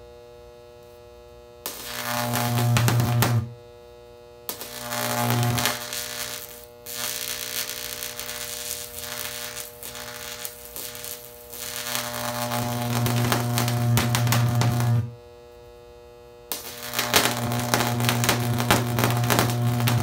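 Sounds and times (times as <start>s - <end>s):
electric arc buzzing and crackling: 0.8s - 3.8s, 4.4s - 15.3s, 16.5s - 20.0s.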